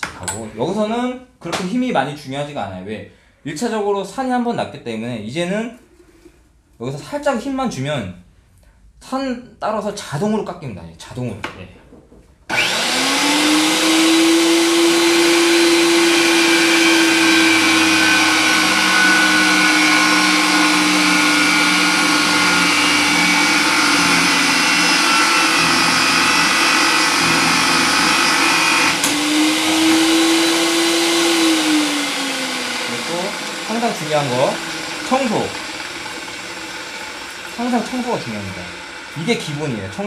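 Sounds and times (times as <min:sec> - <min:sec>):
pipe threading machine cutting: 0:12.5 - 0:40.0.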